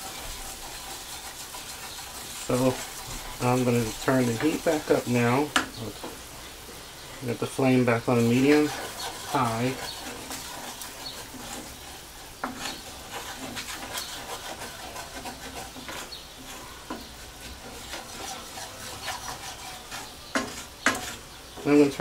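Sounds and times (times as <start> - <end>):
roux bubbling and sizzling: 0.0 - 22.0
wooden spoon scraping a pan: 0.0 - 22.0
spoon knocking against pan: 5.5 - 6.2, 20.3 - 21.2.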